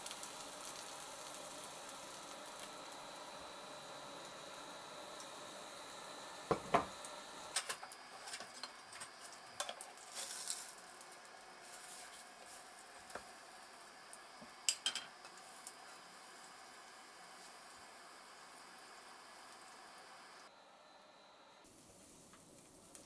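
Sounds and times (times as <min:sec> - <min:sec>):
wooden spatula scraping in pan: 0:11.6 - 0:12.7.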